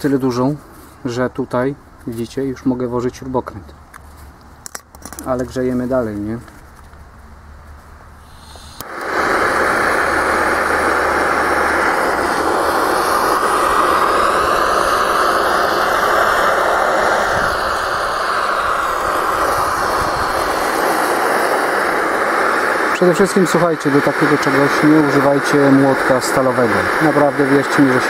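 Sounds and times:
butane torch hissing: 0:08.0 - 0:28.0.

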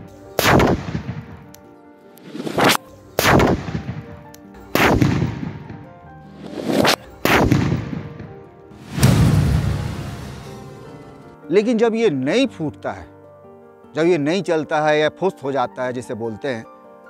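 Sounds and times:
firecrackers exploding: 0:00.4 - 0:01.4, 0:02.3 - 0:04.1, 0:04.8 - 0:05.6, 0:06.4 - 0:08.2, 0:08.8 - 0:10.7.

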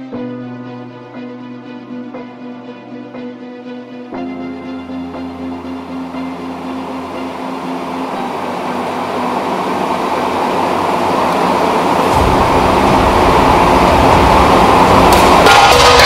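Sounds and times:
rising noise swell in music: 0:05.0 - 0:16.0
low rumble: 0:11.9 - 0:16.0.

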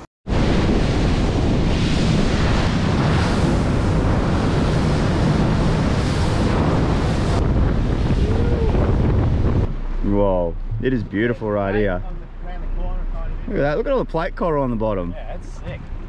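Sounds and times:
wind buffeting microphone: 0:00.3 - 0:12.0
water rushing along hull: 0:00.3 - 0:16.0.

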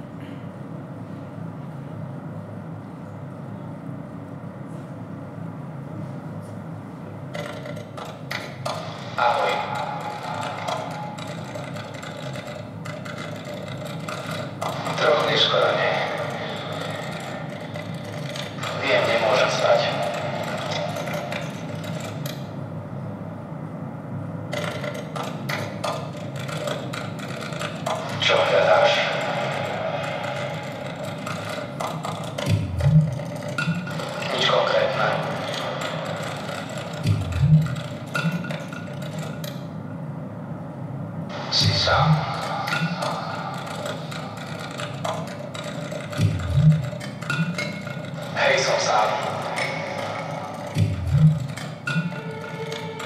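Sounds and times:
low steady hum: 0:00.0 - 0:53.0
short clicks and knocks: 0:35.1 - 0:39.7, 0:41.6 - 0:53.0
low rumbling drone: 0:41.3 - 0:53.0.

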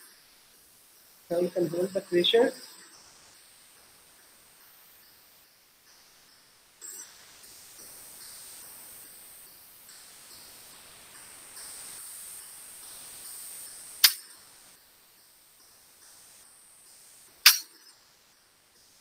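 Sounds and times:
faint steady gas hiss: 0:00.0 - 0:19.0
sharp loud pop: 0:17.4 - 0:17.8.

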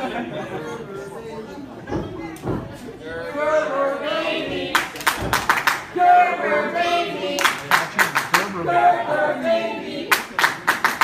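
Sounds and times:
crowd chanting in unison: 0:03.0 - 0:10.3
rhythmic clapping: 0:04.7 - 0:06.0, 0:07.3 - 0:08.7, 0:10.1 - 0:11.0.

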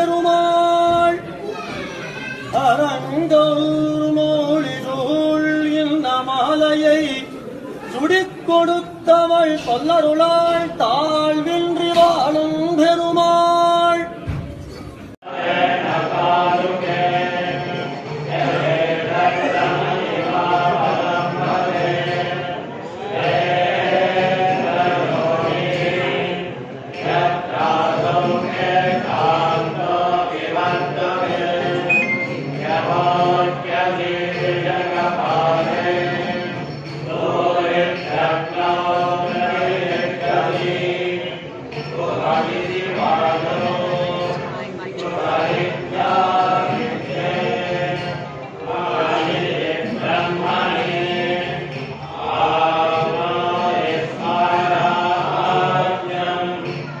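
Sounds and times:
priests chanting: 0:15.2 - 0:57.0.

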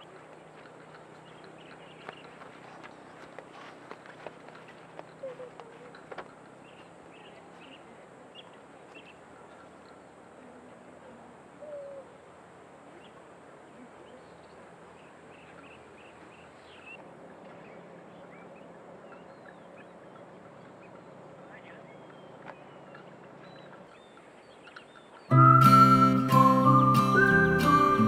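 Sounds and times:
birds chirping: 0:00.0 - 0:28.0
lower bird call: 0:11.5 - 0:12.4, 0:17.6 - 0:28.0.

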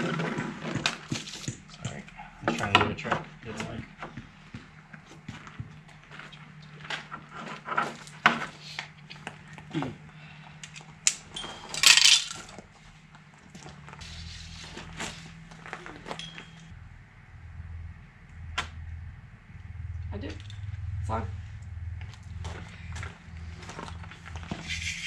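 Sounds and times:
low steady hum: 0:00.0 - 0:25.0
clinks and knocks of tools: 0:10.6 - 0:12.6.

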